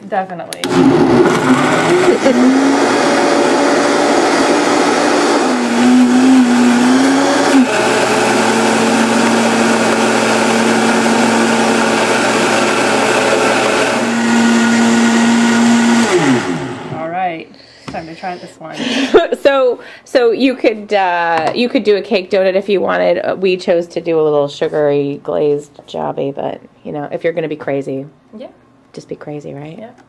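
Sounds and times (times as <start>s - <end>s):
blender motor running: 0.6s - 17.1s.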